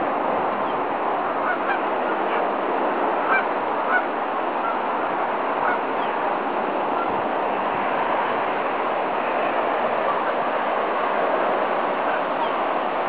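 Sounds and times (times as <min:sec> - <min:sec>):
geese honking: 0:01.4 - 0:02.4, 0:03.2 - 0:04.8, 0:05.6 - 0:06.1.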